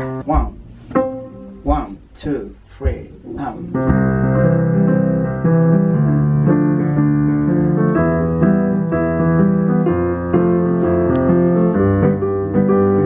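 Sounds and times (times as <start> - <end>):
keyboard playing piano notes and chords: 0.0 - 1.8, 3.4 - 13.0.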